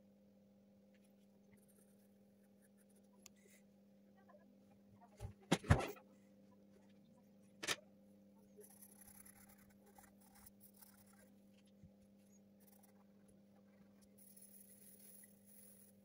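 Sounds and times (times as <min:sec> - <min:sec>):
low steady hum: 0:00.0 - 0:16.0
pencil scratching on paper: 0:08.6 - 0:11.4, 0:12.2 - 0:16.0.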